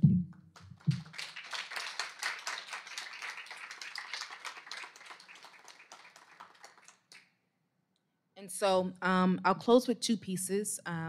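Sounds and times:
audience applauding: 0.5s - 7.2s.

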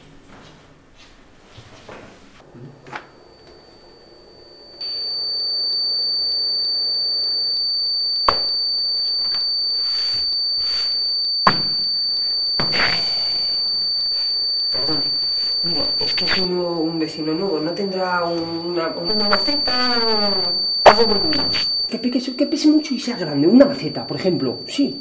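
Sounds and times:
high-pitched electronic tone: 8.2s - 22.0s.

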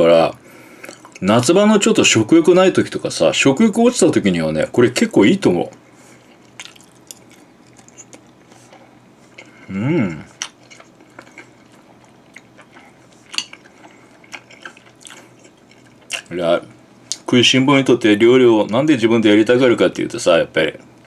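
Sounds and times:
chewing: 6.1s - 16.3s
person humming: 9.6s - 10.4s.

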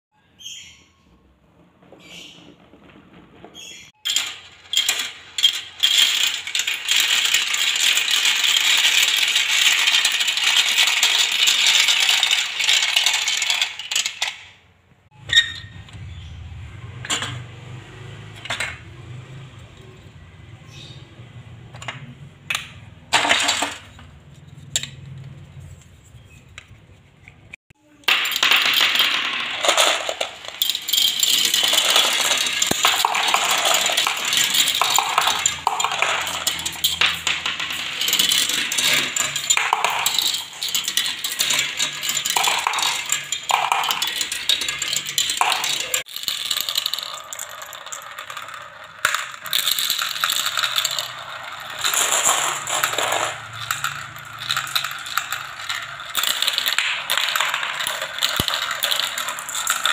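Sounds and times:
marbles clattering down plastic run: 1.8s - 14.5s, 23.1s - 24.0s, 28.0s - 59.9s.

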